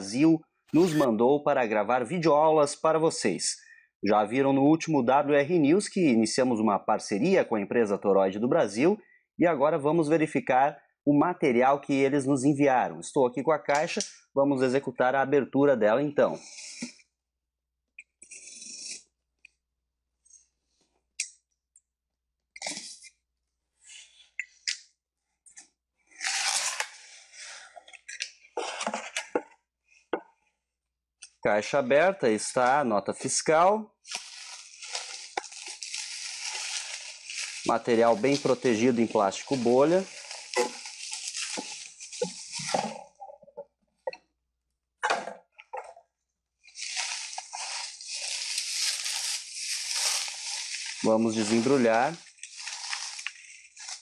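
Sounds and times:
bubble wrap crinkling: 26.2 - 27.1, 34.0 - 43.2, 46.6 - 54.0.

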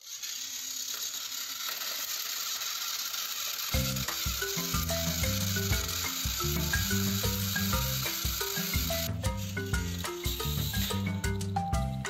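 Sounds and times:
toy train gears whirring and clicking: 0.0 - 12.0
instrumental music: 3.8 - 12.0.

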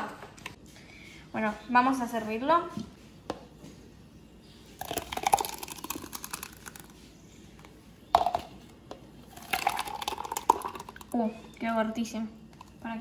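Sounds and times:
thick drink pouring into plastic cup: 4.8 - 7.0, 9.3 - 11.2.

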